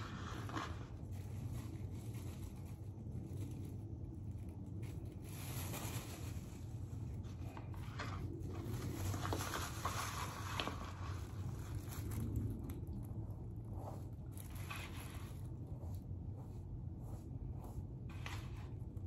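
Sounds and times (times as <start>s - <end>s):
brush scraping through wet hair: 0.0s - 3.7s, 7.5s - 19.0s
plastic gloves rustling: 0.0s - 19.0s
steady low hum: 0.0s - 19.0s.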